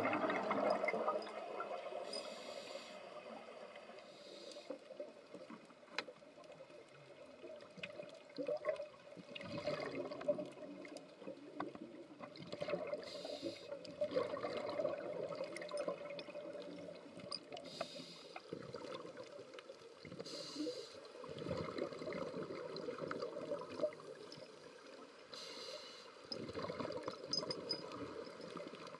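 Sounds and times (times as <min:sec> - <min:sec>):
gurgling exhaled bubbles: 0:00.0 - 0:02.0, 0:08.4 - 0:13.1, 0:13.8 - 0:17.3, 0:21.2 - 0:24.3, 0:26.3 - 0:28.9
regulator inhalation hiss: 0:02.1 - 0:03.1, 0:04.0 - 0:04.8, 0:13.1 - 0:13.8, 0:17.6 - 0:18.5, 0:20.2 - 0:21.1, 0:25.3 - 0:26.2.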